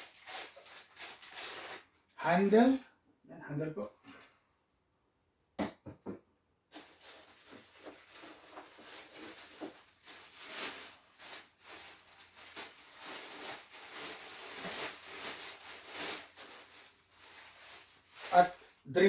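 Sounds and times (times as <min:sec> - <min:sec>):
plastic bag crinkling: 0:00.0 - 0:02.2, 0:06.7 - 0:18.8.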